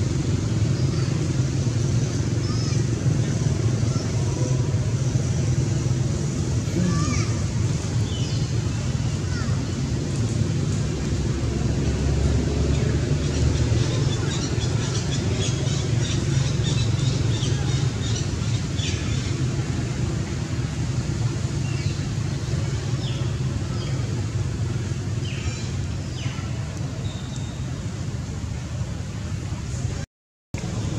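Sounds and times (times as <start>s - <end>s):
small birds chirping: 6.8s - 8.7s.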